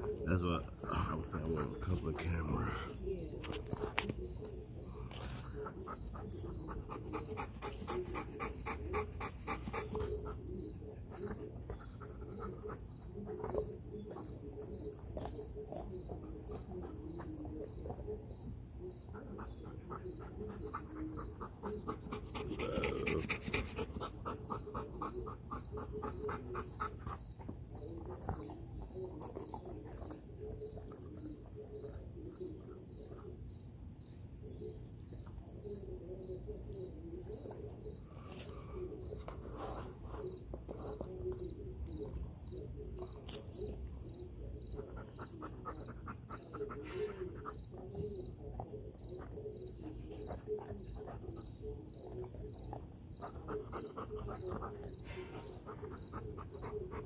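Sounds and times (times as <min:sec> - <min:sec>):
dog panting: 0:00.0 - 0:33.6, 0:34.4 - 0:57.0
dog biting at chicken: 0:03.5 - 0:33.4, 0:42.9 - 0:57.0
insect chirping: 0:08.5 - 0:57.0.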